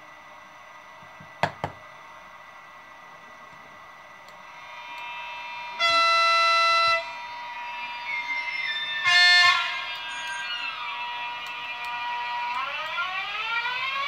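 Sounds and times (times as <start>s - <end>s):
electric traction whine: 2.0s - 14.0s
model train horn: 4.7s - 7.3s, 9.0s - 9.9s.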